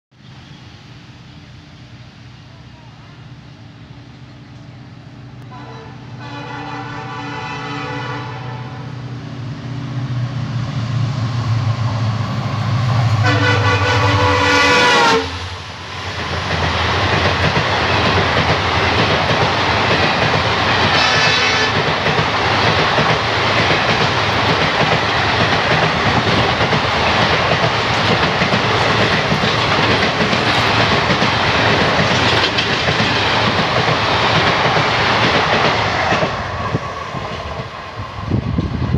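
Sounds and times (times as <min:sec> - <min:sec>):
locomotive horn blast: 0:05.4 - 0:09.0, 0:13.1 - 0:15.5, 0:20.9 - 0:21.8
locomotive engine drone: 0:08.0 - 0:19.5
train wheels clickety-clack: 0:16.0 - 0:38.9.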